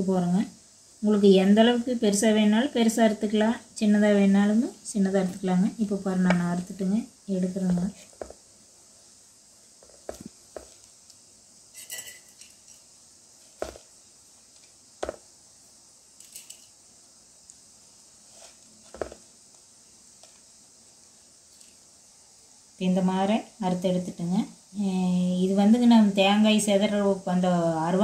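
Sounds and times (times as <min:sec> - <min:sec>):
knife tapping steel plates: 0:11.8 - 0:12.6.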